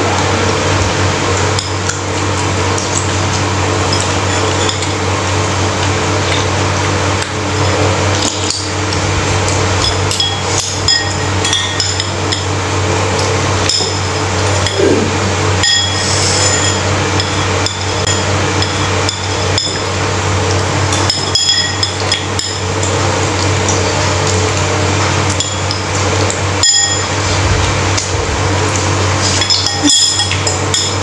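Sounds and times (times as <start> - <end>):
steady low hum: 0.0 - 31.0
cutlery clinking on ceramic bowl: 9.8 - 12.5, 20.9 - 22.6, 29.2 - 31.0.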